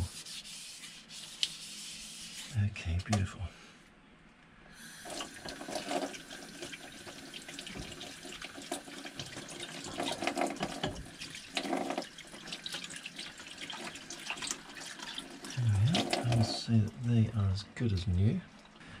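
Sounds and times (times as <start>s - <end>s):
tap water running: 4.8s - 17.1s.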